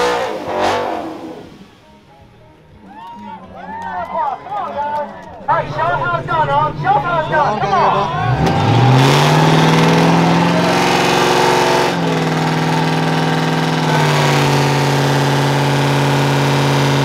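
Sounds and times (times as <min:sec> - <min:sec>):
car engine revving high: 0:00.0 - 0:02.0, 0:05.9 - 0:17.0.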